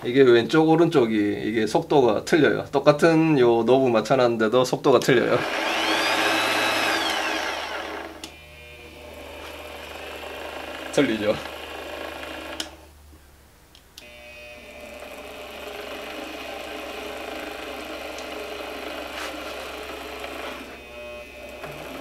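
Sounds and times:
drill press motor running: 5.4 - 12.8, 14.0 - 22.0.

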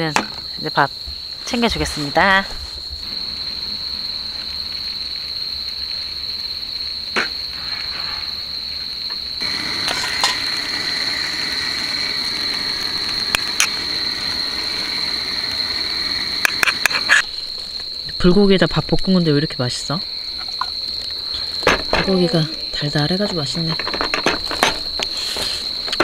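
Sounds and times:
crickets chirping: 0.0 - 26.0
wide hiss: 9.4 - 18.4.

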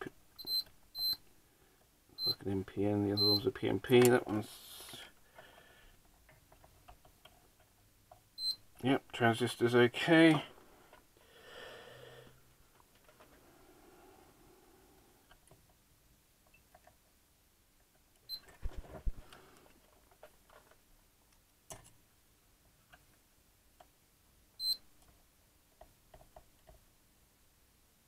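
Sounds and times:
multimeter short high beeps: 0.4 - 1.2, 2.2 - 2.4, 3.2 - 3.4.

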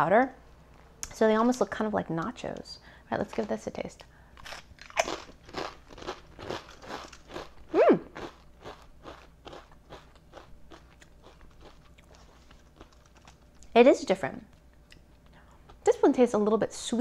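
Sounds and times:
potato chip crunching: 3.1 - 3.8, 4.4 - 13.7
person humming: 7.7 - 8.1.

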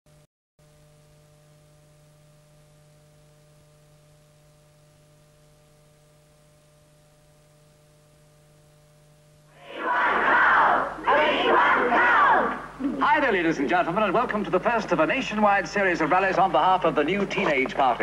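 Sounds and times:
faint electrical hum: 0.6 - 18.0
recording hiss: 10.8 - 18.0.

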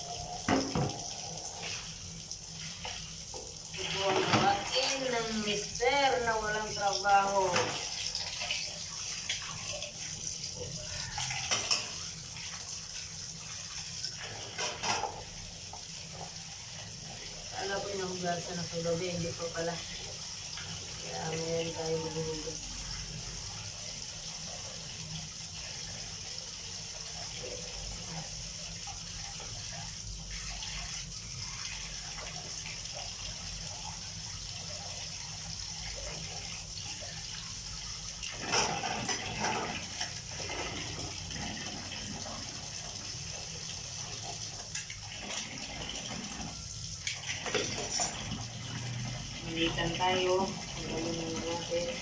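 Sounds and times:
dishes clattering: 0.4 - 1.1, 11.1 - 12.1, 14.4 - 15.3, 38.4 - 40.2, 47.4 - 48.3
tap water splashing into basin: 0.4 - 5.4, 7.2 - 12.7, 38.0 - 50.0.

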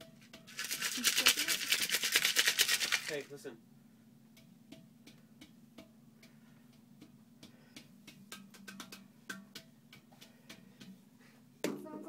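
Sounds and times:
hand percussion taps and clicks: 4.4 - 6.4, 7.0 - 11.0.

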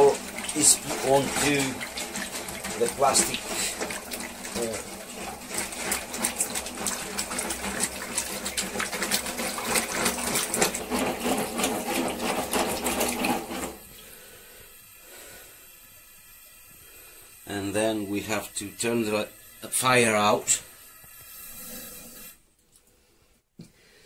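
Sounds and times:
stick stirring milk in metal pot: 0.0 - 13.8.

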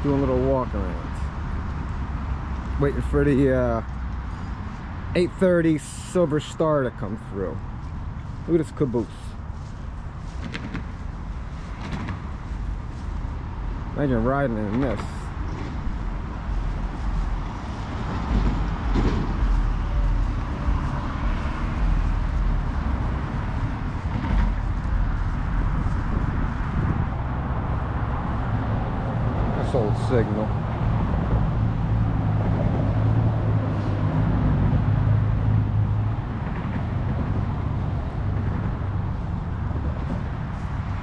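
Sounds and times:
road traffic noise: 0.0 - 41.0
wind buffeting microphone: 9.4 - 41.0.

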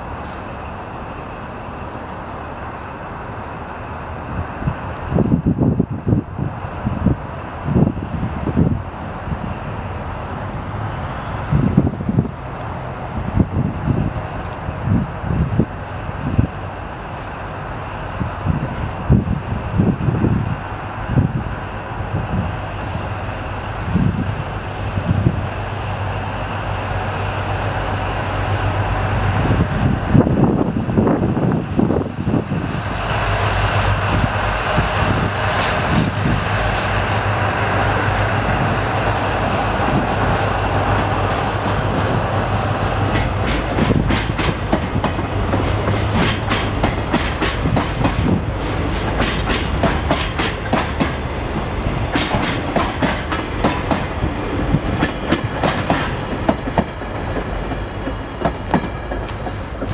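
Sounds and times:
diesel locomotive engine running: 0.0 - 59.9
train wheels clacking over rail joints: 39.9 - 59.9.

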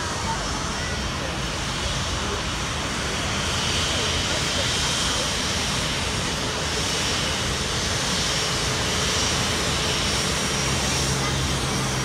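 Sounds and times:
jet engines at taxi power: 0.0 - 12.0.

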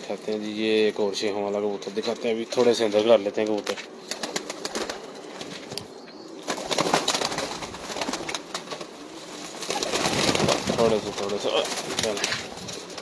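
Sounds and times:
pigeons cooing: 0.0 - 13.0
pigeons fluttering wings: 3.6 - 13.0
pigeons shuffling on wooden shelf: 6.6 - 13.0.

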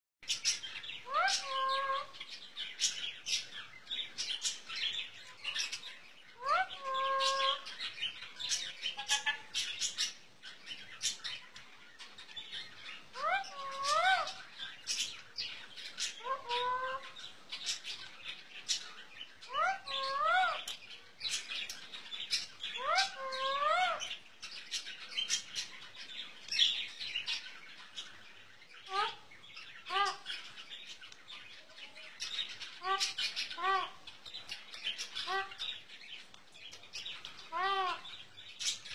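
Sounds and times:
parrot chirps: 0.2 - 2.3, 5.4 - 10.2, 12.9 - 15.2, 15.8 - 17.9, 18.7 - 21.5, 22.2 - 24.2, 29.8 - 30.5, 32.4 - 34.1, 34.8 - 35.8.

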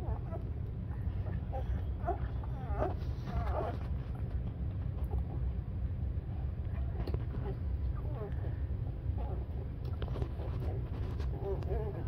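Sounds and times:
puppy squeaky whimpers: 0.0 - 3.8, 6.7 - 8.4, 9.2 - 12.0
steady low rumble: 0.0 - 12.0.

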